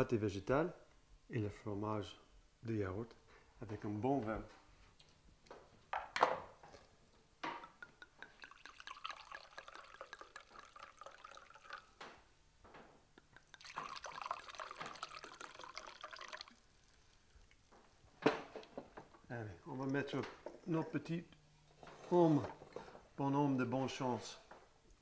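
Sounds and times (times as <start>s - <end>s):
wine pouring into a glass: 7.6s - 12.0s, 13.3s - 17.7s.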